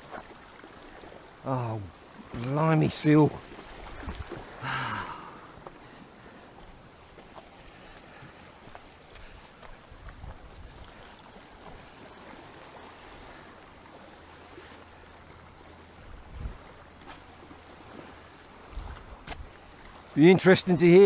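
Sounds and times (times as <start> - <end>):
waves lapping against rocks: 0.0 - 21.0
wind buffeting microphone: 9.2 - 11.1, 16.0 - 16.7, 18.6 - 19.6.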